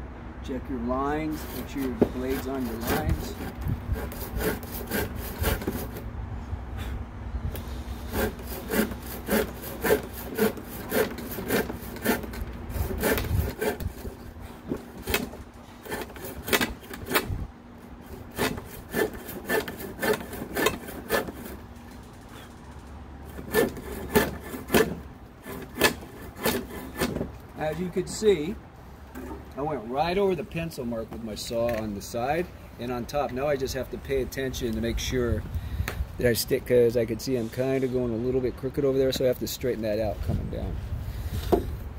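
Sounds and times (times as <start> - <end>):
hand saw cutting wood: 0.8 - 6.0, 7.6 - 22.5, 23.2 - 28.4.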